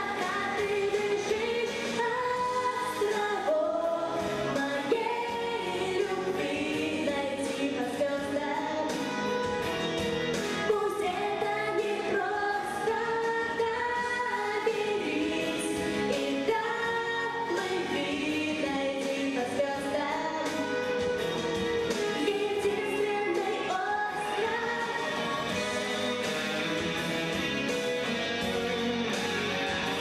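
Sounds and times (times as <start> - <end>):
girl singing into microphone: 0.0 - 9.2, 10.7 - 21.1, 22.2 - 25.6
musical accompaniment: 0.0 - 30.0.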